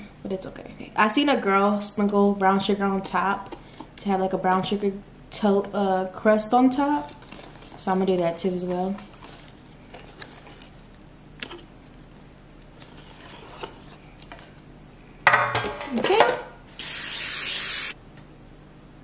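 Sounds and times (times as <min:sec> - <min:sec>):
aerosol spray hissing: 0:16.8 - 0:18.0.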